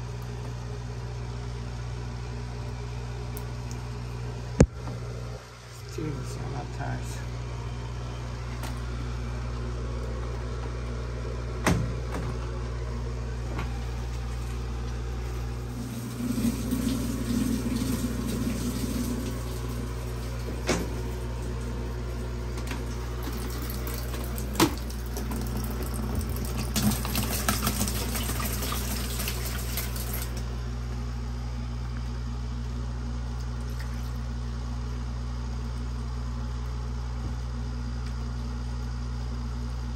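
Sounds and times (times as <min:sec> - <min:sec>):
low whirring: 0:00.0 - 0:26.4
washing machine hum: 0:00.0 - 0:39.9
liquid pouring into drum: 0:13.8 - 0:21.8, 0:22.8 - 0:30.5.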